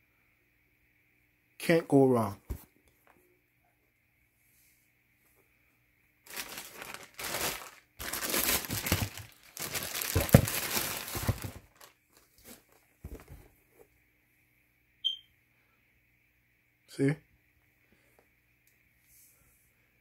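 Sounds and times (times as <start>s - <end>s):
tissue paper crinkling: 6.3s - 13.2s.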